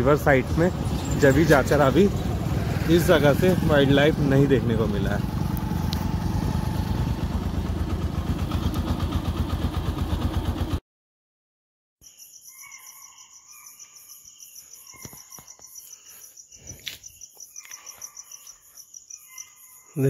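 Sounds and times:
motorcycle engine running: 0.0s - 10.8s
crickets trilling: 12.0s - 20.0s.

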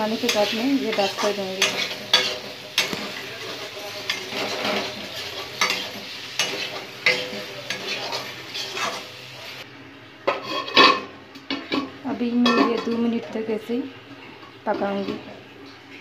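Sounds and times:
spices sizzling in oil: 0.0s - 9.7s
spatula scraping a metal pan: 0.2s - 9.1s.

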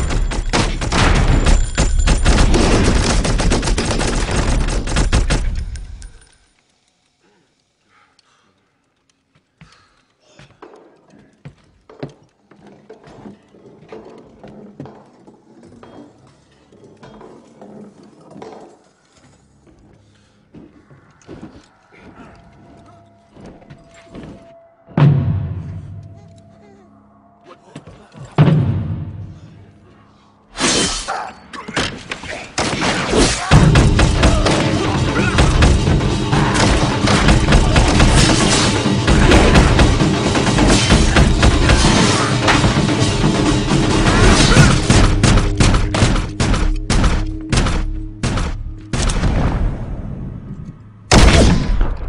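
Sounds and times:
glass shattering: 0.0s - 3.0s
gunshots: 0.0s - 5.9s, 31.9s - 50.0s, 51.1s - 52.0s
action film music score: 0.0s - 6.6s, 7.8s - 52.0s
heavy impacts: 28.3s - 29.8s, 31.9s - 52.0s.

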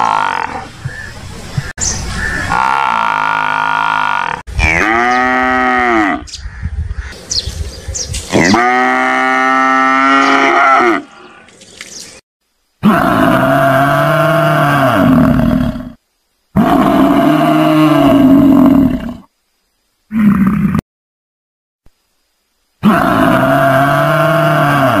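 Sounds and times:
water buffalo lowing: 0.0s - 6.3s.

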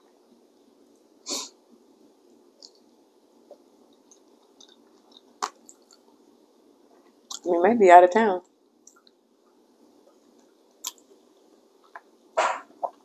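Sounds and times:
person chewing: 2.6s - 2.9s, 3.6s - 6.2s, 10.1s - 11.2s.

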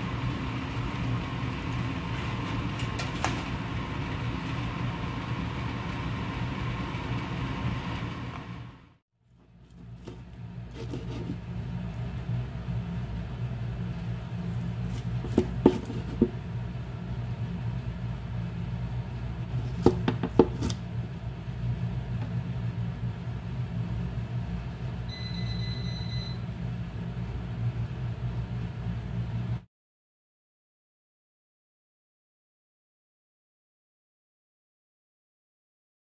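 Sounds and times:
steady low hum: 0.0s - 29.7s
knife chopping on cutting board: 15.2s - 16.4s, 19.6s - 20.8s
brief high beep: 25.1s - 26.4s.

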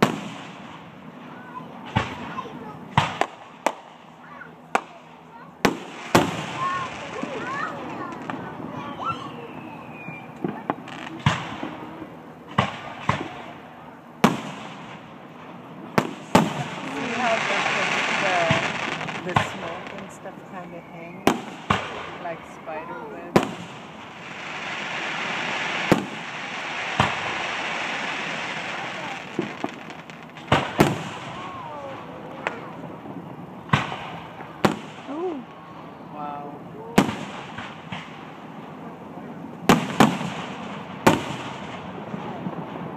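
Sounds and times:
fireworks bursting: 0.0s - 42.9s
firework shells bursting: 5.6s - 8.6s, 23.2s - 35.6s.

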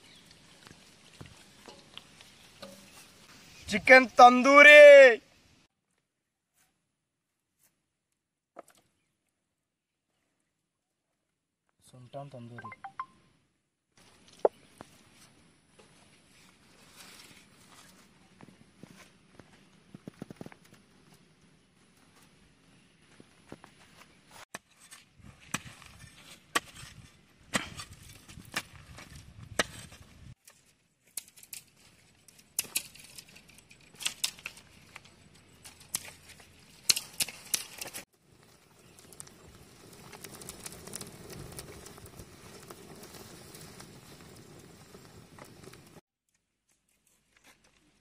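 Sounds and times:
twigs cracking and snapping: 28.0s - 43.2s.

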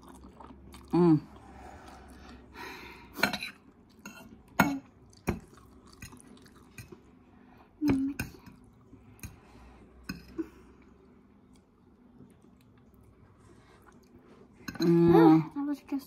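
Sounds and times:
chewing noodles: 0.0s - 2.5s, 3.6s - 7.1s, 10.8s - 14.7s.

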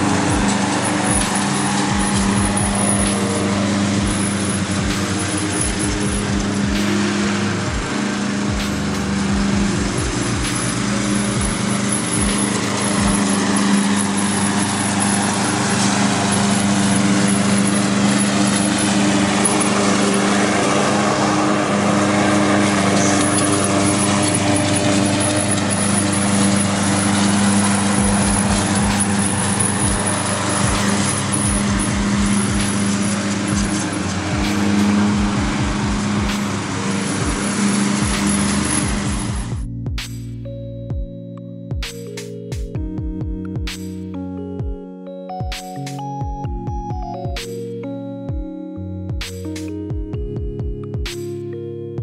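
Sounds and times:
lawn mower engine running: 0.0s - 40.1s, 49.1s - 50.0s.

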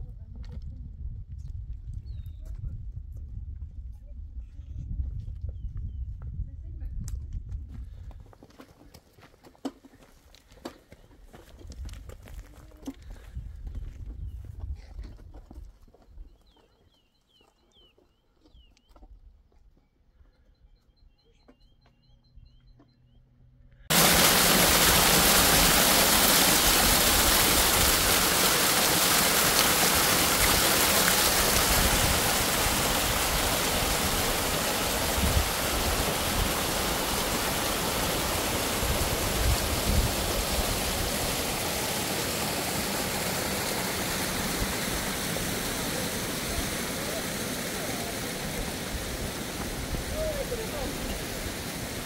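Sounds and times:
stream rushing over rocks: 23.9s - 52.0s.

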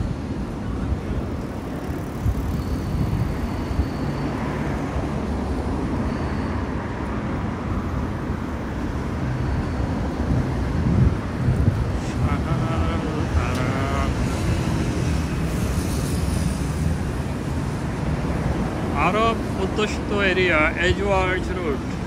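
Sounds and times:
cars passing on street: 0.0s - 22.0s.

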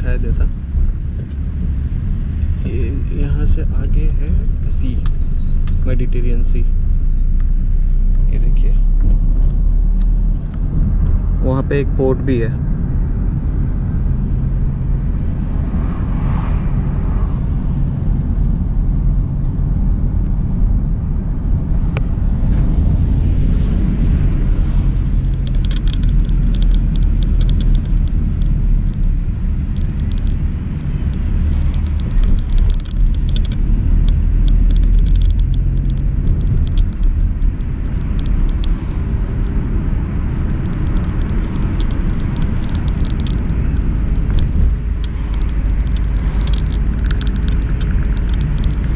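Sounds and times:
engine and road rumble: 0.0s - 48.9s
faint rattle clicks: 25.2s - 29.1s, 29.7s - 30.4s, 31.0s - 39.6s, 40.5s - 48.9s.

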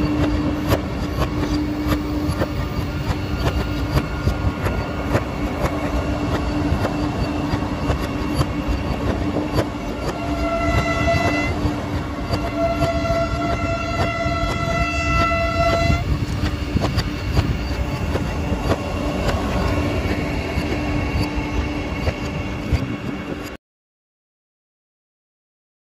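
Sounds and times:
electric train rumbling past: 0.0s - 23.6s
wheels clattering over rail joints: 0.0s - 23.6s
train horn blasts: 10.0s - 16.2s.

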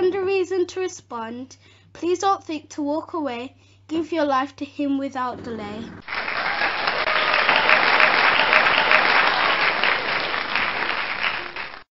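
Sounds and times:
large audience applauding: 6.0s - 11.9s.

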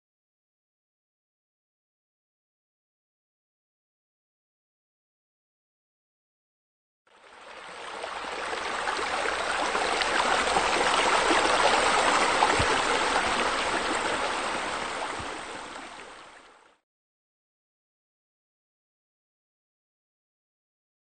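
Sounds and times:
water splashing into pool: 8.3s - 15.6s.

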